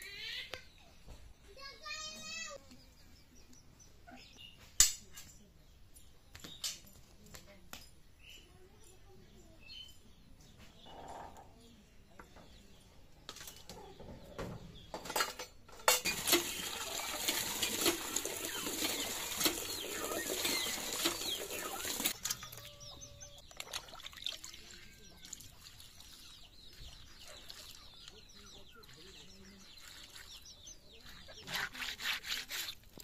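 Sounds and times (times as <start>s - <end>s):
water gushing into plastic bucket: 16.1s - 22.1s
hens clucking: 16.1s - 23.5s.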